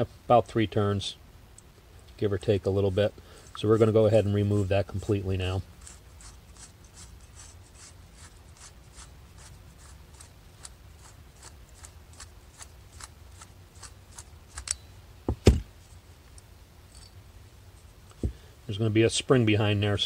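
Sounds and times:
dull thumps of handling: 15.2 - 15.8, 18.1 - 18.4.

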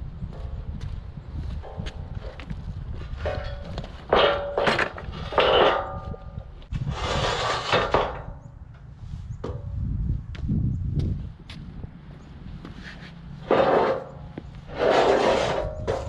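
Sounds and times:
metal scrape: 3.1 - 8.5, 12.8 - 16.0
loud metal clanks: 3.2 - 6.4.

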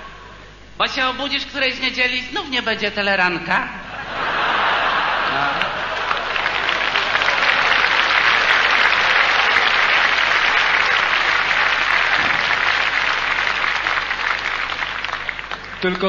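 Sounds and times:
audience applauding: 4.3 - 16.0.

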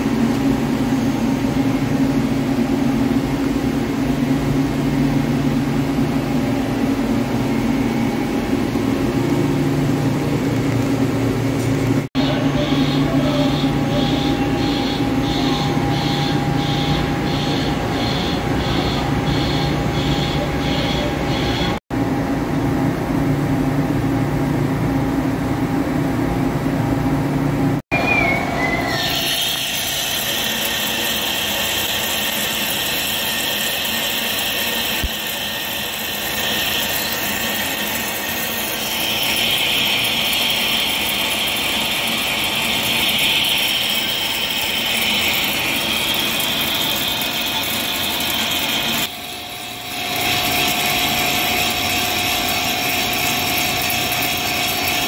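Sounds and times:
low machine hum: 0.0 - 55.0
lathe cutting hiss: 28.9 - 55.0.

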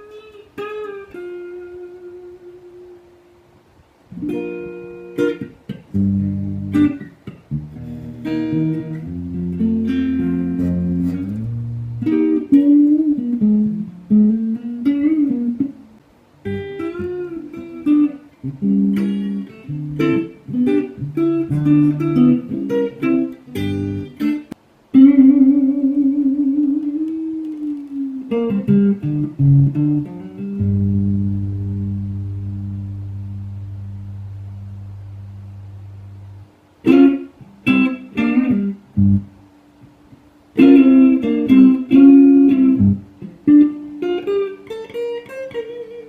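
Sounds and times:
solo electric guitar: 0.0 - 46.0.

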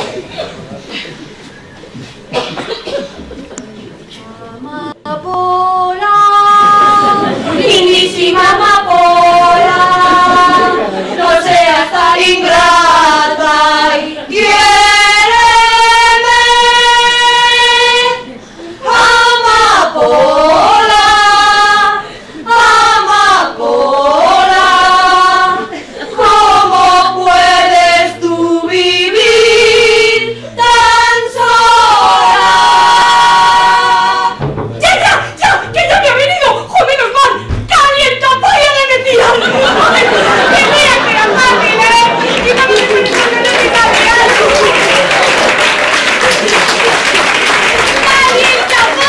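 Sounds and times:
women singing together: 4.2 - 45.7, 47.6 - 49.0.

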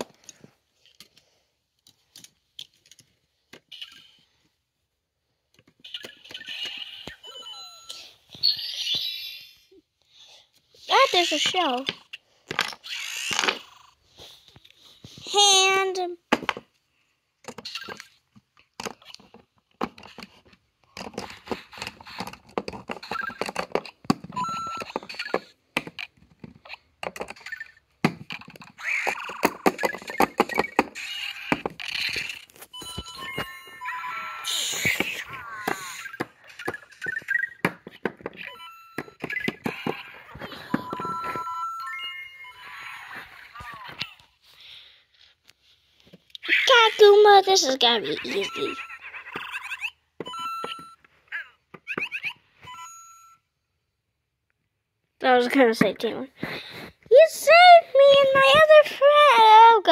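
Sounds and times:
light handling clicks and rustles: 0.0 - 3.7
electronic beeping tones from a toy: 7.2 - 9.0, 24.4 - 25.3, 32.7 - 34.4, 38.4 - 42.9, 48.4 - 51.1, 51.9 - 53.4.

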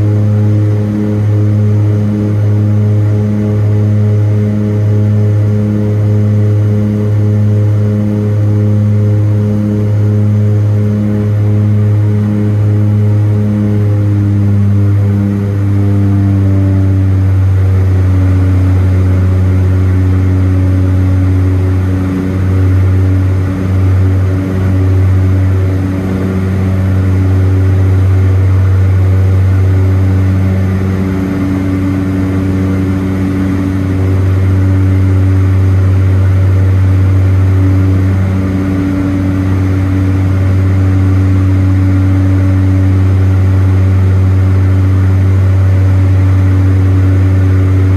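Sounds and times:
turboprop cabin drone: 0.0 - 47.9.

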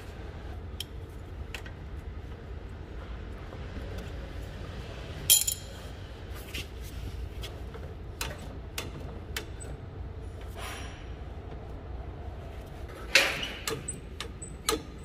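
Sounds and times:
metal tools clinking: 5.3 - 5.8.

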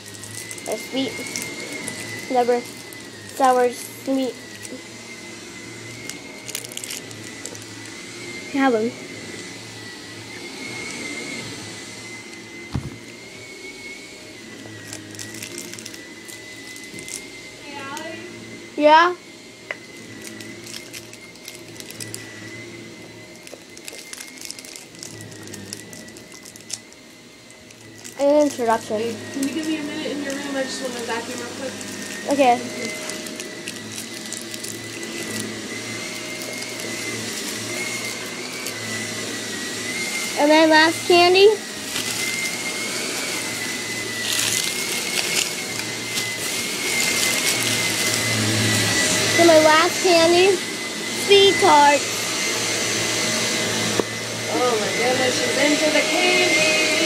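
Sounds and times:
plastic wrapper crinkling: 0.0 - 4.8, 5.9 - 8.0, 14.7 - 17.3, 19.9 - 22.3, 23.3 - 39.1, 41.7 - 48.4
vacuum cleaner running: 0.0 - 57.0.

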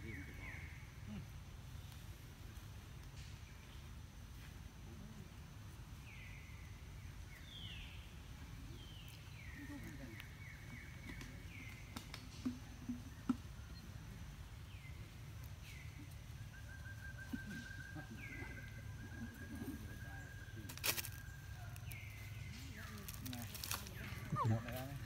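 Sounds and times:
birds whistling calls: 14.7 - 25.0.

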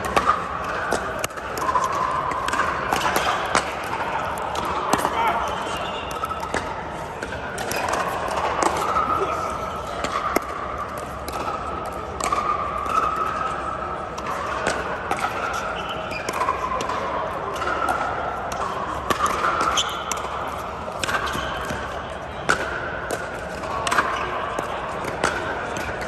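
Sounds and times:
ball bouncing on court: 0.0 - 9.0
murmur of distant voices: 0.0 - 26.0.

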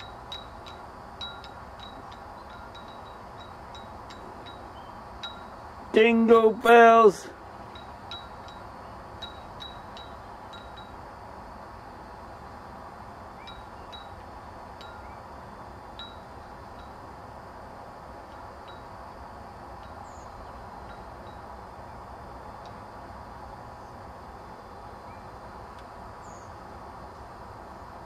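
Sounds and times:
small metallic pings: 0.0 - 5.6, 7.6 - 11.0, 14.8 - 15.2, 15.9 - 17.0
steady background hiss: 0.0 - 28.0.

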